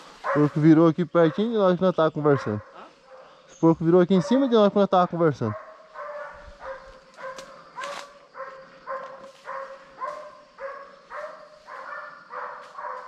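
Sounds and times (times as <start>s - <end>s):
dog barking: 0.2s - 1.7s, 2.3s - 3.4s, 4.1s - 4.8s, 5.4s - 13.0s.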